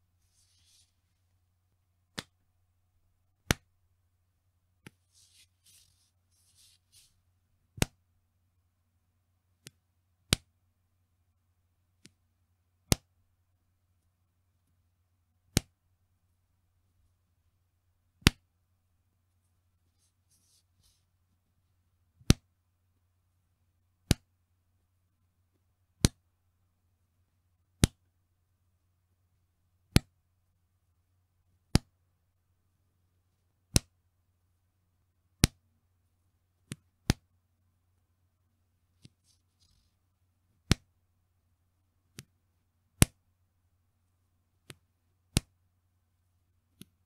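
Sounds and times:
elastic band snapping: 36.7s - 37.2s.

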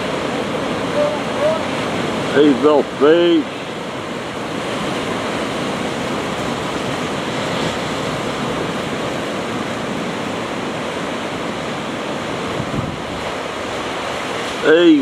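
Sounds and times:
ocean surf breaking over rocks: 0.0s - 15.0s.

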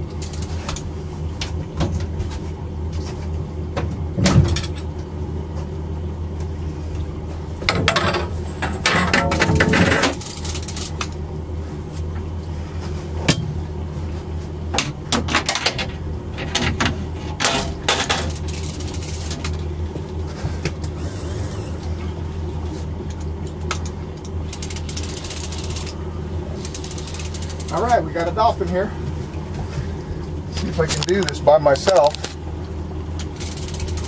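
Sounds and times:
outboard motor running: 0.0s - 34.0s
fishing reel clicks and knocks: 24.5s - 26.0s, 26.6s - 27.9s, 33.4s - 34.0s.

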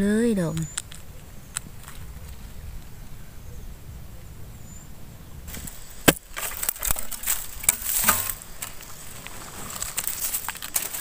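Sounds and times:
blade chopping bamboo: 5.5s - 8.4s.

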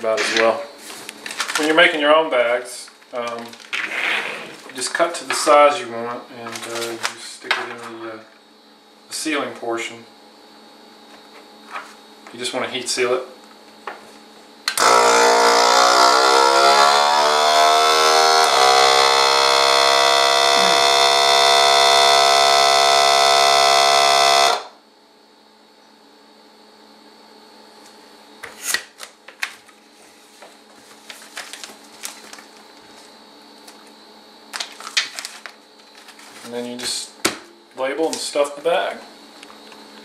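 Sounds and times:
vacuum sealer motor humming: 14.7s - 24.8s.

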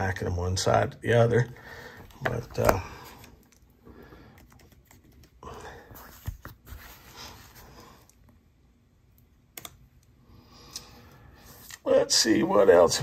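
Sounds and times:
faint breath: 1.6s - 2.1s.

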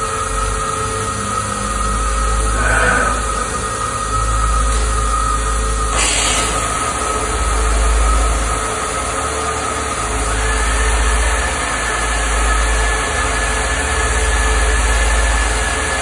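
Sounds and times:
machine humming: 0.0s - 16.0s
cutting torch hissing: 1.8s - 12.8s.

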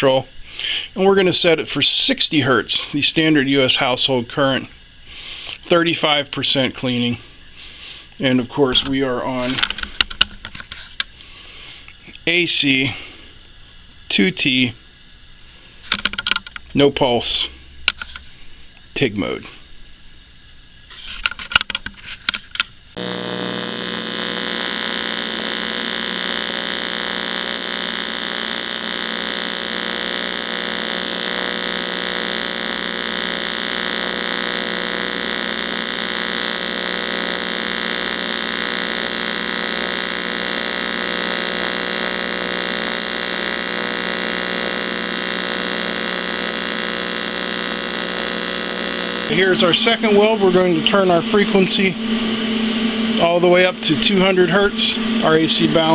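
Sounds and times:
welding arc buzzing: 22.9s - 55.9s.

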